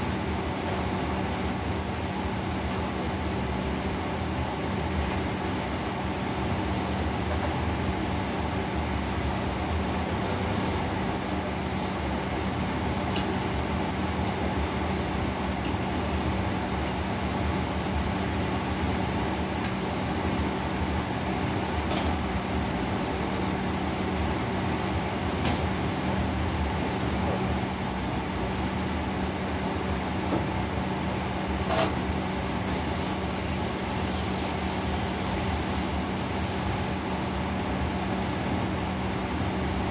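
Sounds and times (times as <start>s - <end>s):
kitchen exhaust hood humming: 0.0s - 39.9s.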